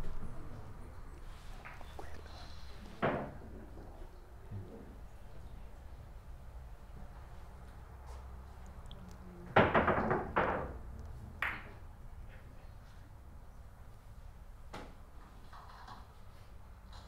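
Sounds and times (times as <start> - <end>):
billiard balls clacking: 9.5 - 10.8, 11.4 - 11.8.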